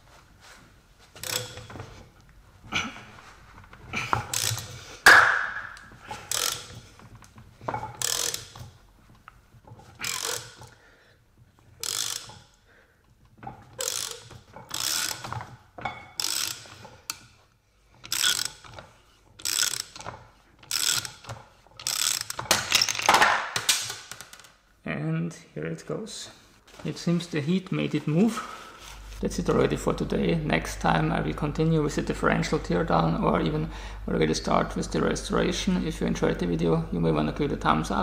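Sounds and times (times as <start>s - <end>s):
ratchet wrench clicking: 1.2s - 1.7s, 4.2s - 7.1s, 7.8s - 8.8s, 10.0s - 10.8s, 11.8s - 12.6s, 13.7s - 15.5s, 16.1s - 17.3s, 18.0s - 18.8s, 19.4s - 23.1s.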